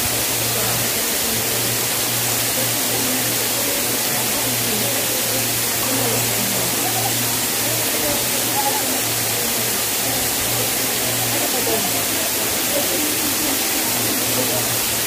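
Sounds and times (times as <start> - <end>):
waterfall rushing into pool: 0.0 - 15.0.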